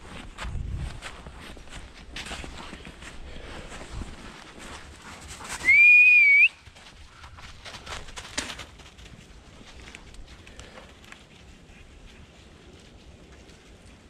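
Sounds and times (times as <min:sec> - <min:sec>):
footsteps in snow: 0:00.0 - 0:05.8
loud pure whistle: 0:05.6 - 0:06.6.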